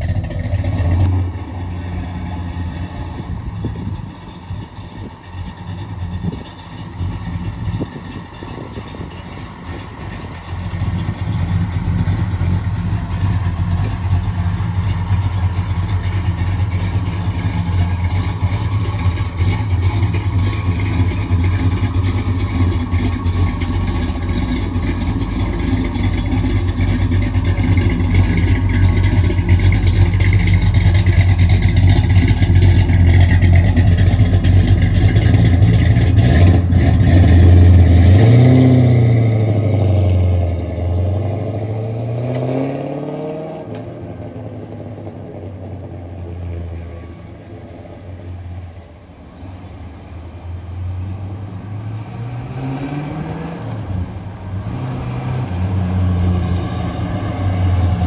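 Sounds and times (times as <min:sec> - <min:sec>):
car engine running: 0:00.0 - 0:41.6, 0:56.0 - 0:58.0.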